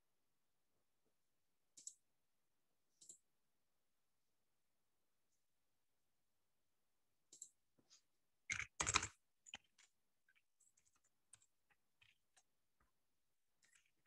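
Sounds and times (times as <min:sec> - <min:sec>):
computer keyboard typing: 0:08.5 - 0:12.5.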